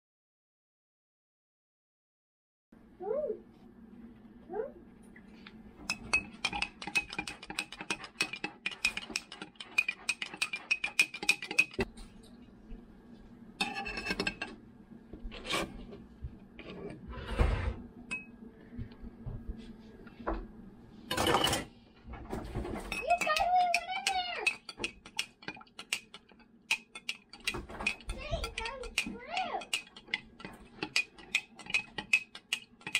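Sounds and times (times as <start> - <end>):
utensils knocking and clattering: 5.8 - 11.9, 13.6 - 14.6, 21.1 - 32.9
spoon clinking against glass jar: 26.7 - 32.9.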